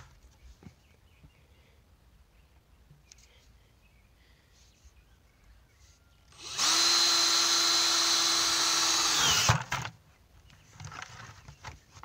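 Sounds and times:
drill boring into plastic: 6.3 - 9.8.

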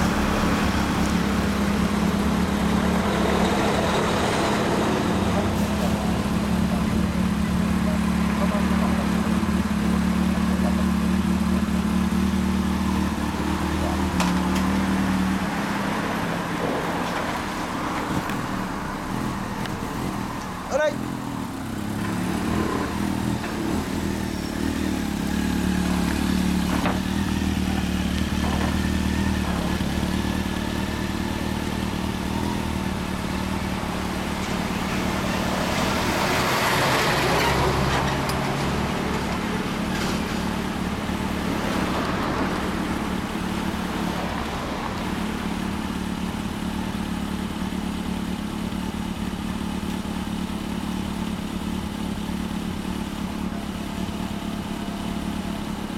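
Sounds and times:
large vehicle passing: 0.0 - 7.4, 31.9 - 45.8
motorcycles idling: 0.0 - 55.9.

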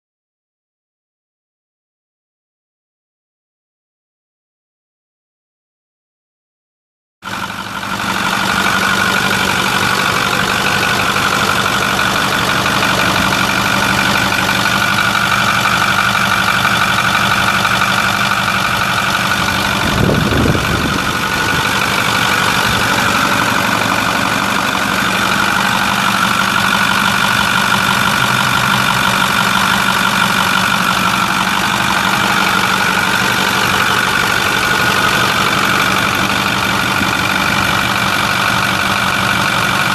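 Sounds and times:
diesel engine idling: 7.2 - 39.9
high whine: 8.3 - 38.9.

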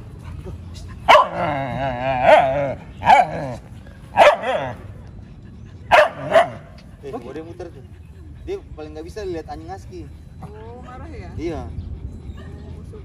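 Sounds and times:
small dog barking: 1.1 - 1.5, 2.2 - 4.8, 5.9 - 6.7.

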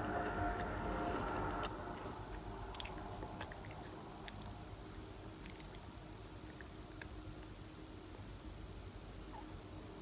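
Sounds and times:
low steady hum: 0.0 - 10.0
soft mouth clicks: 5.4 - 5.8.

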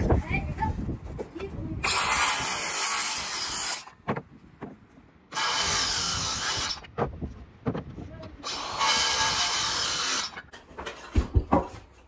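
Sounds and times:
power saw cutting lumber: 1.8 - 3.9, 5.3 - 6.9, 8.4 - 10.5.

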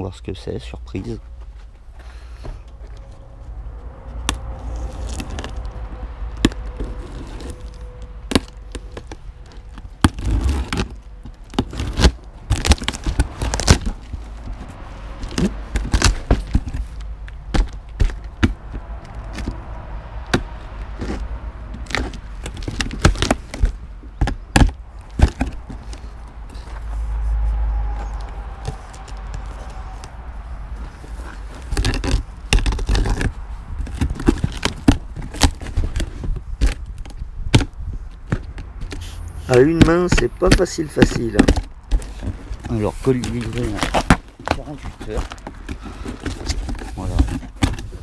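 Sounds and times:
packing tape peeling: 4.3 - 14.4, 31.0 - 37.1
cardboard tearing and cracking: 4.3 - 19.6, 20.2 - 26.6, 30.9 - 48.0.

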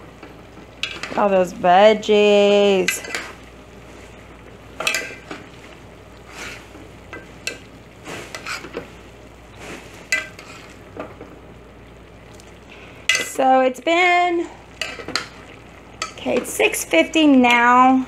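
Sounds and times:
water bubbling at a boil: 0.0 - 18.0
metal spoon scraping a pot: 4.8 - 5.3, 8.3 - 8.8, 10.1 - 10.7.

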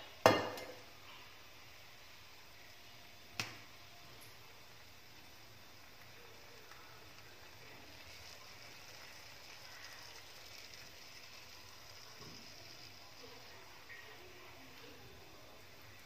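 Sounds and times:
syrup sizzling on hot pastry: 0.0 - 16.0.

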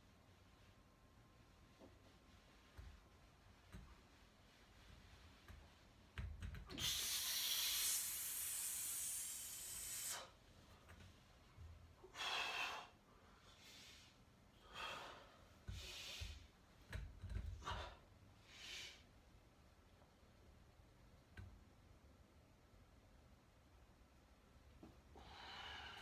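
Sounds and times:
person breathing hard: 12.0 - 16.5, 25.1 - 26.0.

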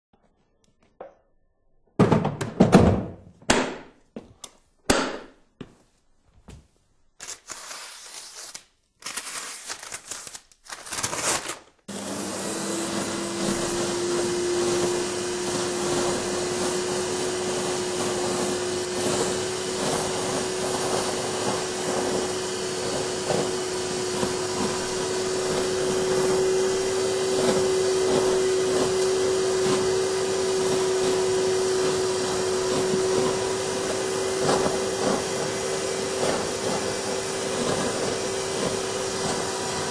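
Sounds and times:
vacuum cleaner motor humming: 11.9 - 39.9.

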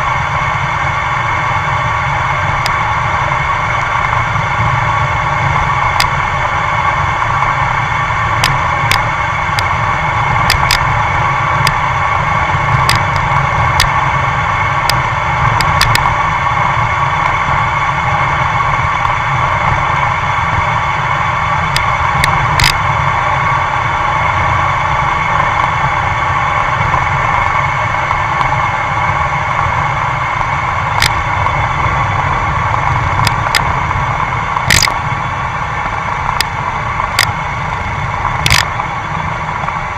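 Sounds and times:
wind and road noise: 0.0 - 39.9
sharp ticks: 5.9 - 6.3, 8.4 - 9.7, 10.3 - 11.0, 12.4 - 14.0, 14.8 - 16.2, 21.7 - 22.8, 31.0 - 31.6, 32.7 - 35.0, 36.2 - 37.4, 38.2 - 38.9.

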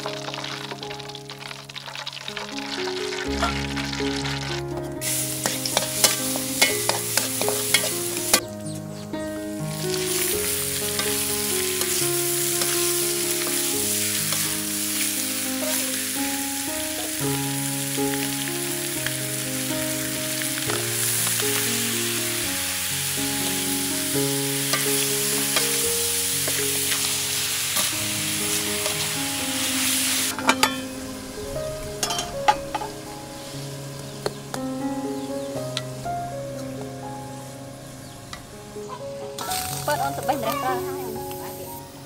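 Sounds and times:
chicken sizzling in a wok: 0.0 - 8.5, 9.6 - 34.6, 39.4 - 41.9
background melody: 0.0 - 42.0
metal spatula scraping: 5.4 - 8.4.

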